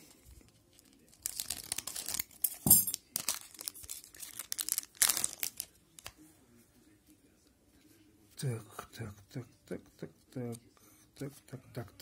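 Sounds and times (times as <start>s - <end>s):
wrapper crinkling: 0.7s - 6.1s
scissors cutting a wrapper: 1.1s - 5.7s.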